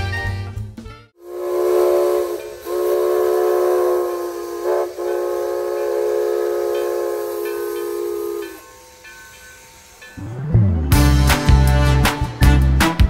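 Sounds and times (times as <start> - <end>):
steam locomotive whistle blasts: 1.2 - 10.2.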